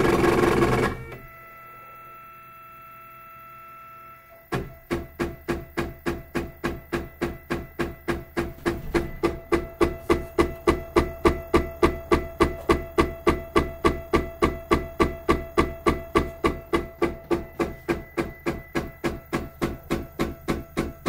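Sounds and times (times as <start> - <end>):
faint steady whine: 0.0 - 21.0
printer axis knocking: 4.5 - 21.0.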